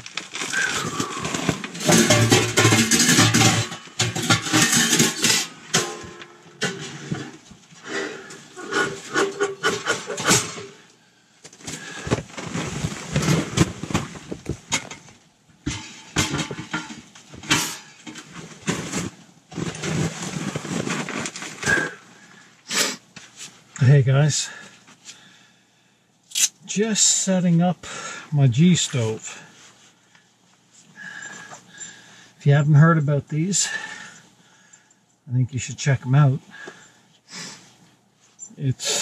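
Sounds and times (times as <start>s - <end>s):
metal stovepipes clanking: 0.6s - 10.8s, 15.7s - 18.4s.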